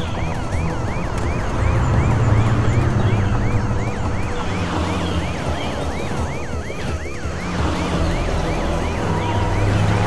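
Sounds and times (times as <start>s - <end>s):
low vehicle rumble: 0.0s - 6.6s
police siren yelping: 0.0s - 10.0s.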